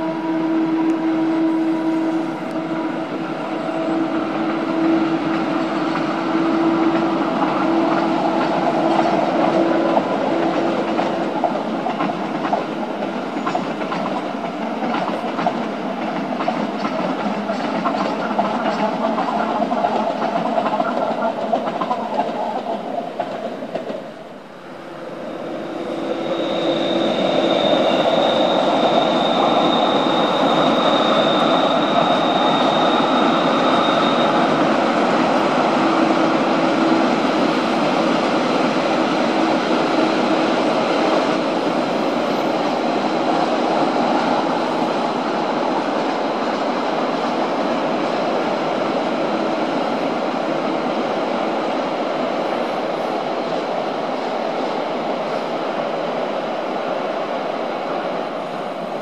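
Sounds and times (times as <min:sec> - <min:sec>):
electric locomotive hum: 0:00.0 - 0:59.0
train wheels rumbling: 0:00.0 - 0:59.0
wheels clicking over rail joints: 0:06.9 - 0:24.2
high wheel squeal: 0:24.8 - 0:36.3.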